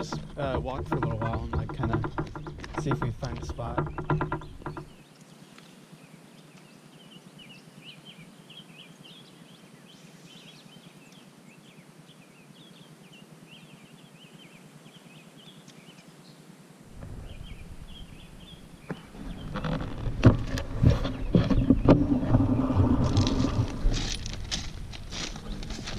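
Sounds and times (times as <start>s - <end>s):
small birds chirping: 0.0s - 25.9s
steady outdoor hiss: 0.0s - 25.9s.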